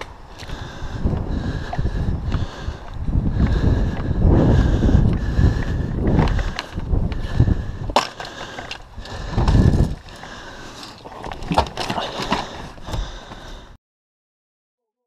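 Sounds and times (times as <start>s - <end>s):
heavy rumbling: 0.0s - 10.7s.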